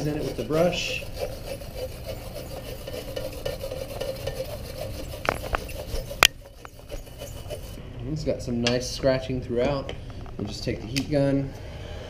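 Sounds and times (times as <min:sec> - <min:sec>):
bristle brush scrubbing film: 0:00.0 - 0:07.8.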